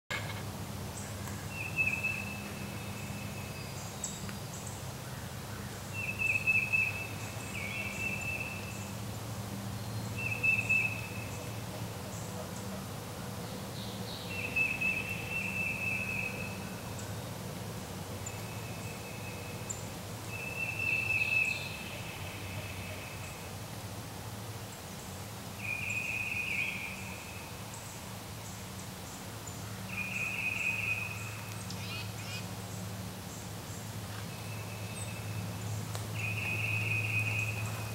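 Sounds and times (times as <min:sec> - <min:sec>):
songbird trilling: 0:36.2 - 0:37.8.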